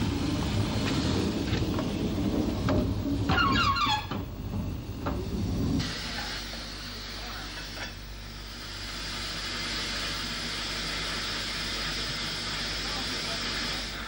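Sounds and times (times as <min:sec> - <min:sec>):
low rumble: 0:00.0 - 0:06.4
steam locomotive hissing: 0:00.0 - 0:14.0.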